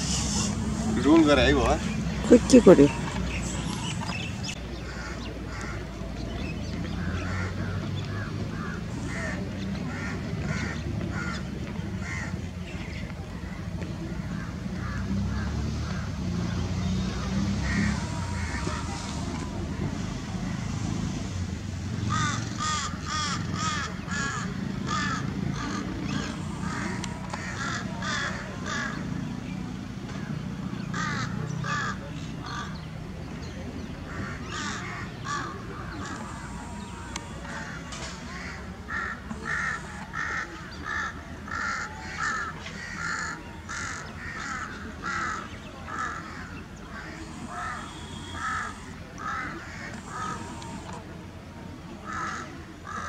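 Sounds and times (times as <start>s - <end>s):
crows cawing: 12.0s - 12.3s, 17.4s - 19.5s, 22.0s - 29.1s, 30.9s - 32.8s, 34.1s - 51.0s, 52.1s - 53.0s.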